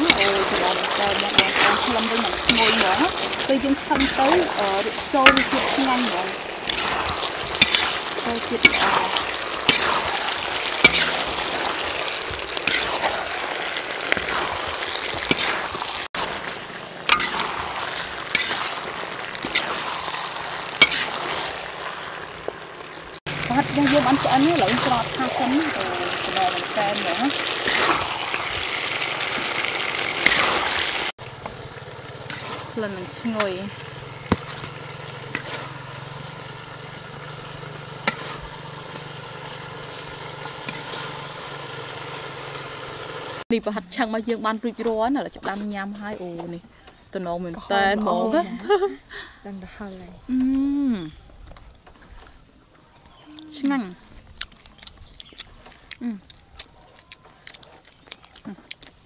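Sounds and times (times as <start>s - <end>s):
metal spoon scraping a pan: 0.0s - 21.8s, 23.6s - 28.7s, 32.3s - 33.6s, 34.4s - 36.5s, 37.4s - 41.3s
food sizzling in a wok: 0.0s - 44.8s.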